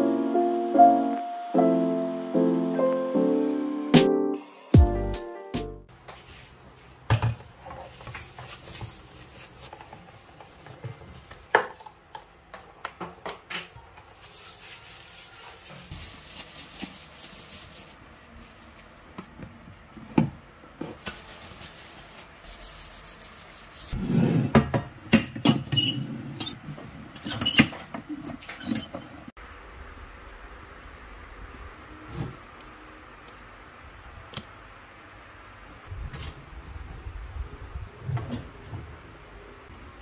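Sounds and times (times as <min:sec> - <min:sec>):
rubbing and wiping: 0:07.7 - 0:11.5, 0:14.0 - 0:19.2, 0:21.0 - 0:24.4.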